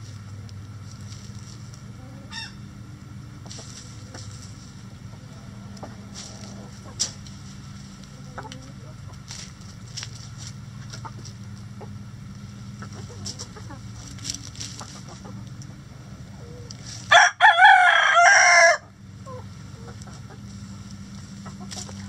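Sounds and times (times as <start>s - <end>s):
steady low hum: 0.0s - 22.0s
hens clucking softly: 0.2s - 2.8s, 3.4s - 17.0s, 19.2s - 22.0s
rooster crowing: 2.2s - 2.7s, 17.1s - 18.9s.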